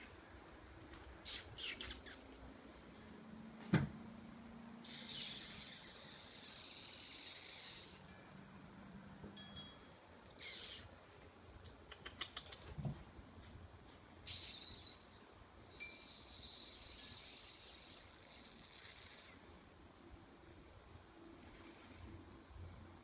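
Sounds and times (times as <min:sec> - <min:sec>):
kittens hissing: 0:01.0 - 0:02.4, 0:04.8 - 0:08.0, 0:10.4 - 0:10.9, 0:16.2 - 0:19.5
soft thump: 0:03.6 - 0:04.0.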